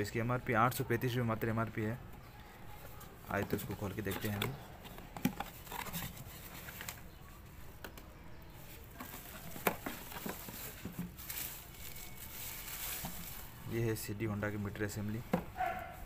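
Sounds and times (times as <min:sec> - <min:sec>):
bubble wrap crinkling: 0:08.6 - 0:13.9.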